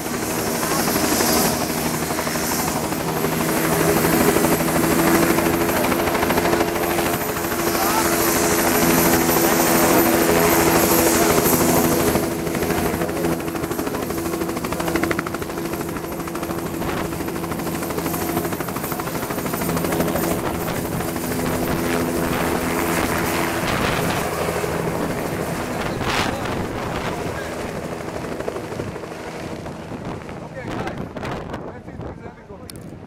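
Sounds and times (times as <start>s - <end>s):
helicopter rotor and engine: 0.0s - 33.0s.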